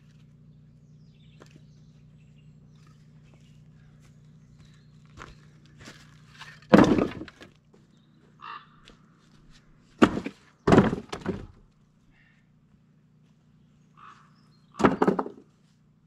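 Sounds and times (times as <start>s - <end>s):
logs knocking on wood: 6.6s - 7.5s, 10.0s - 11.6s, 14.8s - 15.4s.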